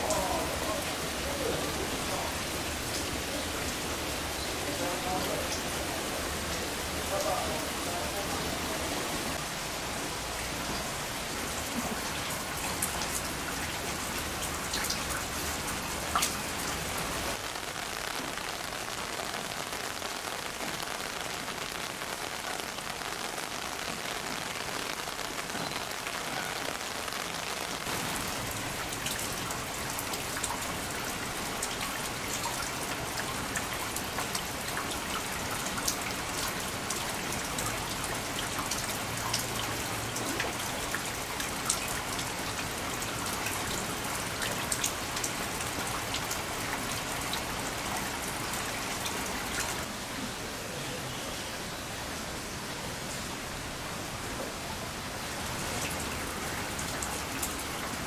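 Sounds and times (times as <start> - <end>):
heavy rain falling: 0.0 - 58.0
raindrop ticking close by: 9.8 - 49.9.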